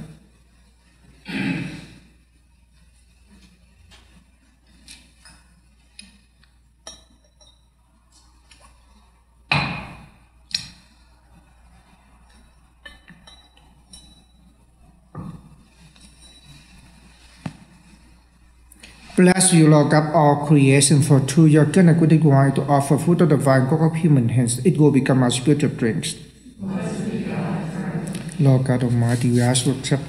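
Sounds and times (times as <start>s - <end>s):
glass cruets clinking: 6.8s - 7.7s, 12.9s - 14.4s.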